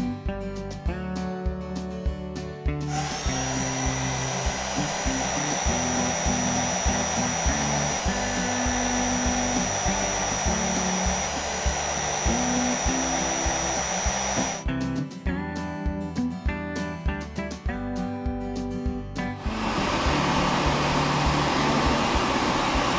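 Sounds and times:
background music with bass: 0.0s - 22.9s
rushing air machine with whine: 2.9s - 14.7s, 19.4s - 22.9s.

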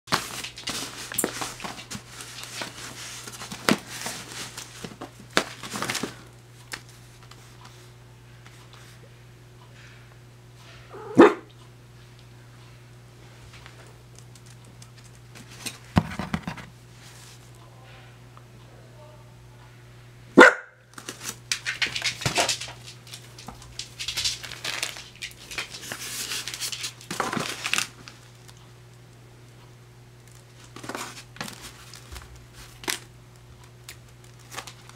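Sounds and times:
plastic bag crinkling: 0.1s - 6.9s, 20.9s - 28.7s, 30.2s - 34.9s
faint low hum: 0.1s - 34.9s.

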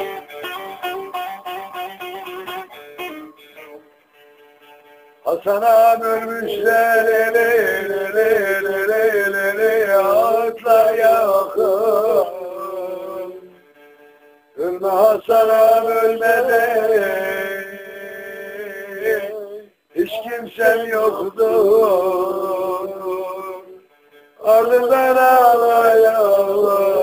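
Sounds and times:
man singing held phrases: 5.2s - 13.6s, 14.6s - 27.0s.

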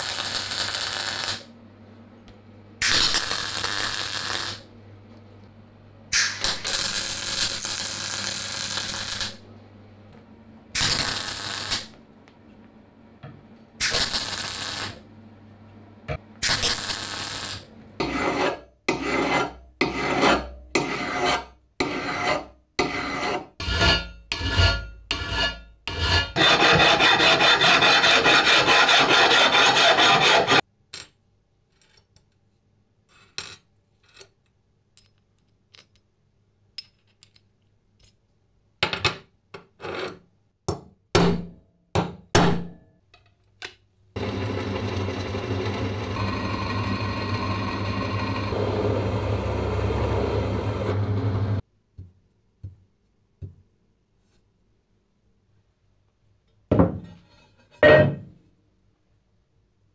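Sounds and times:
welding burst: 0.0s - 1.5s, 2.8s - 4.6s, 6.2s - 9.4s, 10.8s - 11.9s, 13.8s - 15.0s, 16.4s - 17.7s
hand file rasping on steel: 18.0s - 30.6s.

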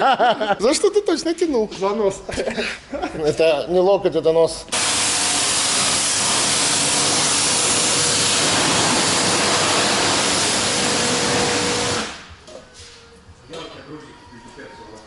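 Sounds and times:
pressure washer spraying water: 4.7s - 12.3s.

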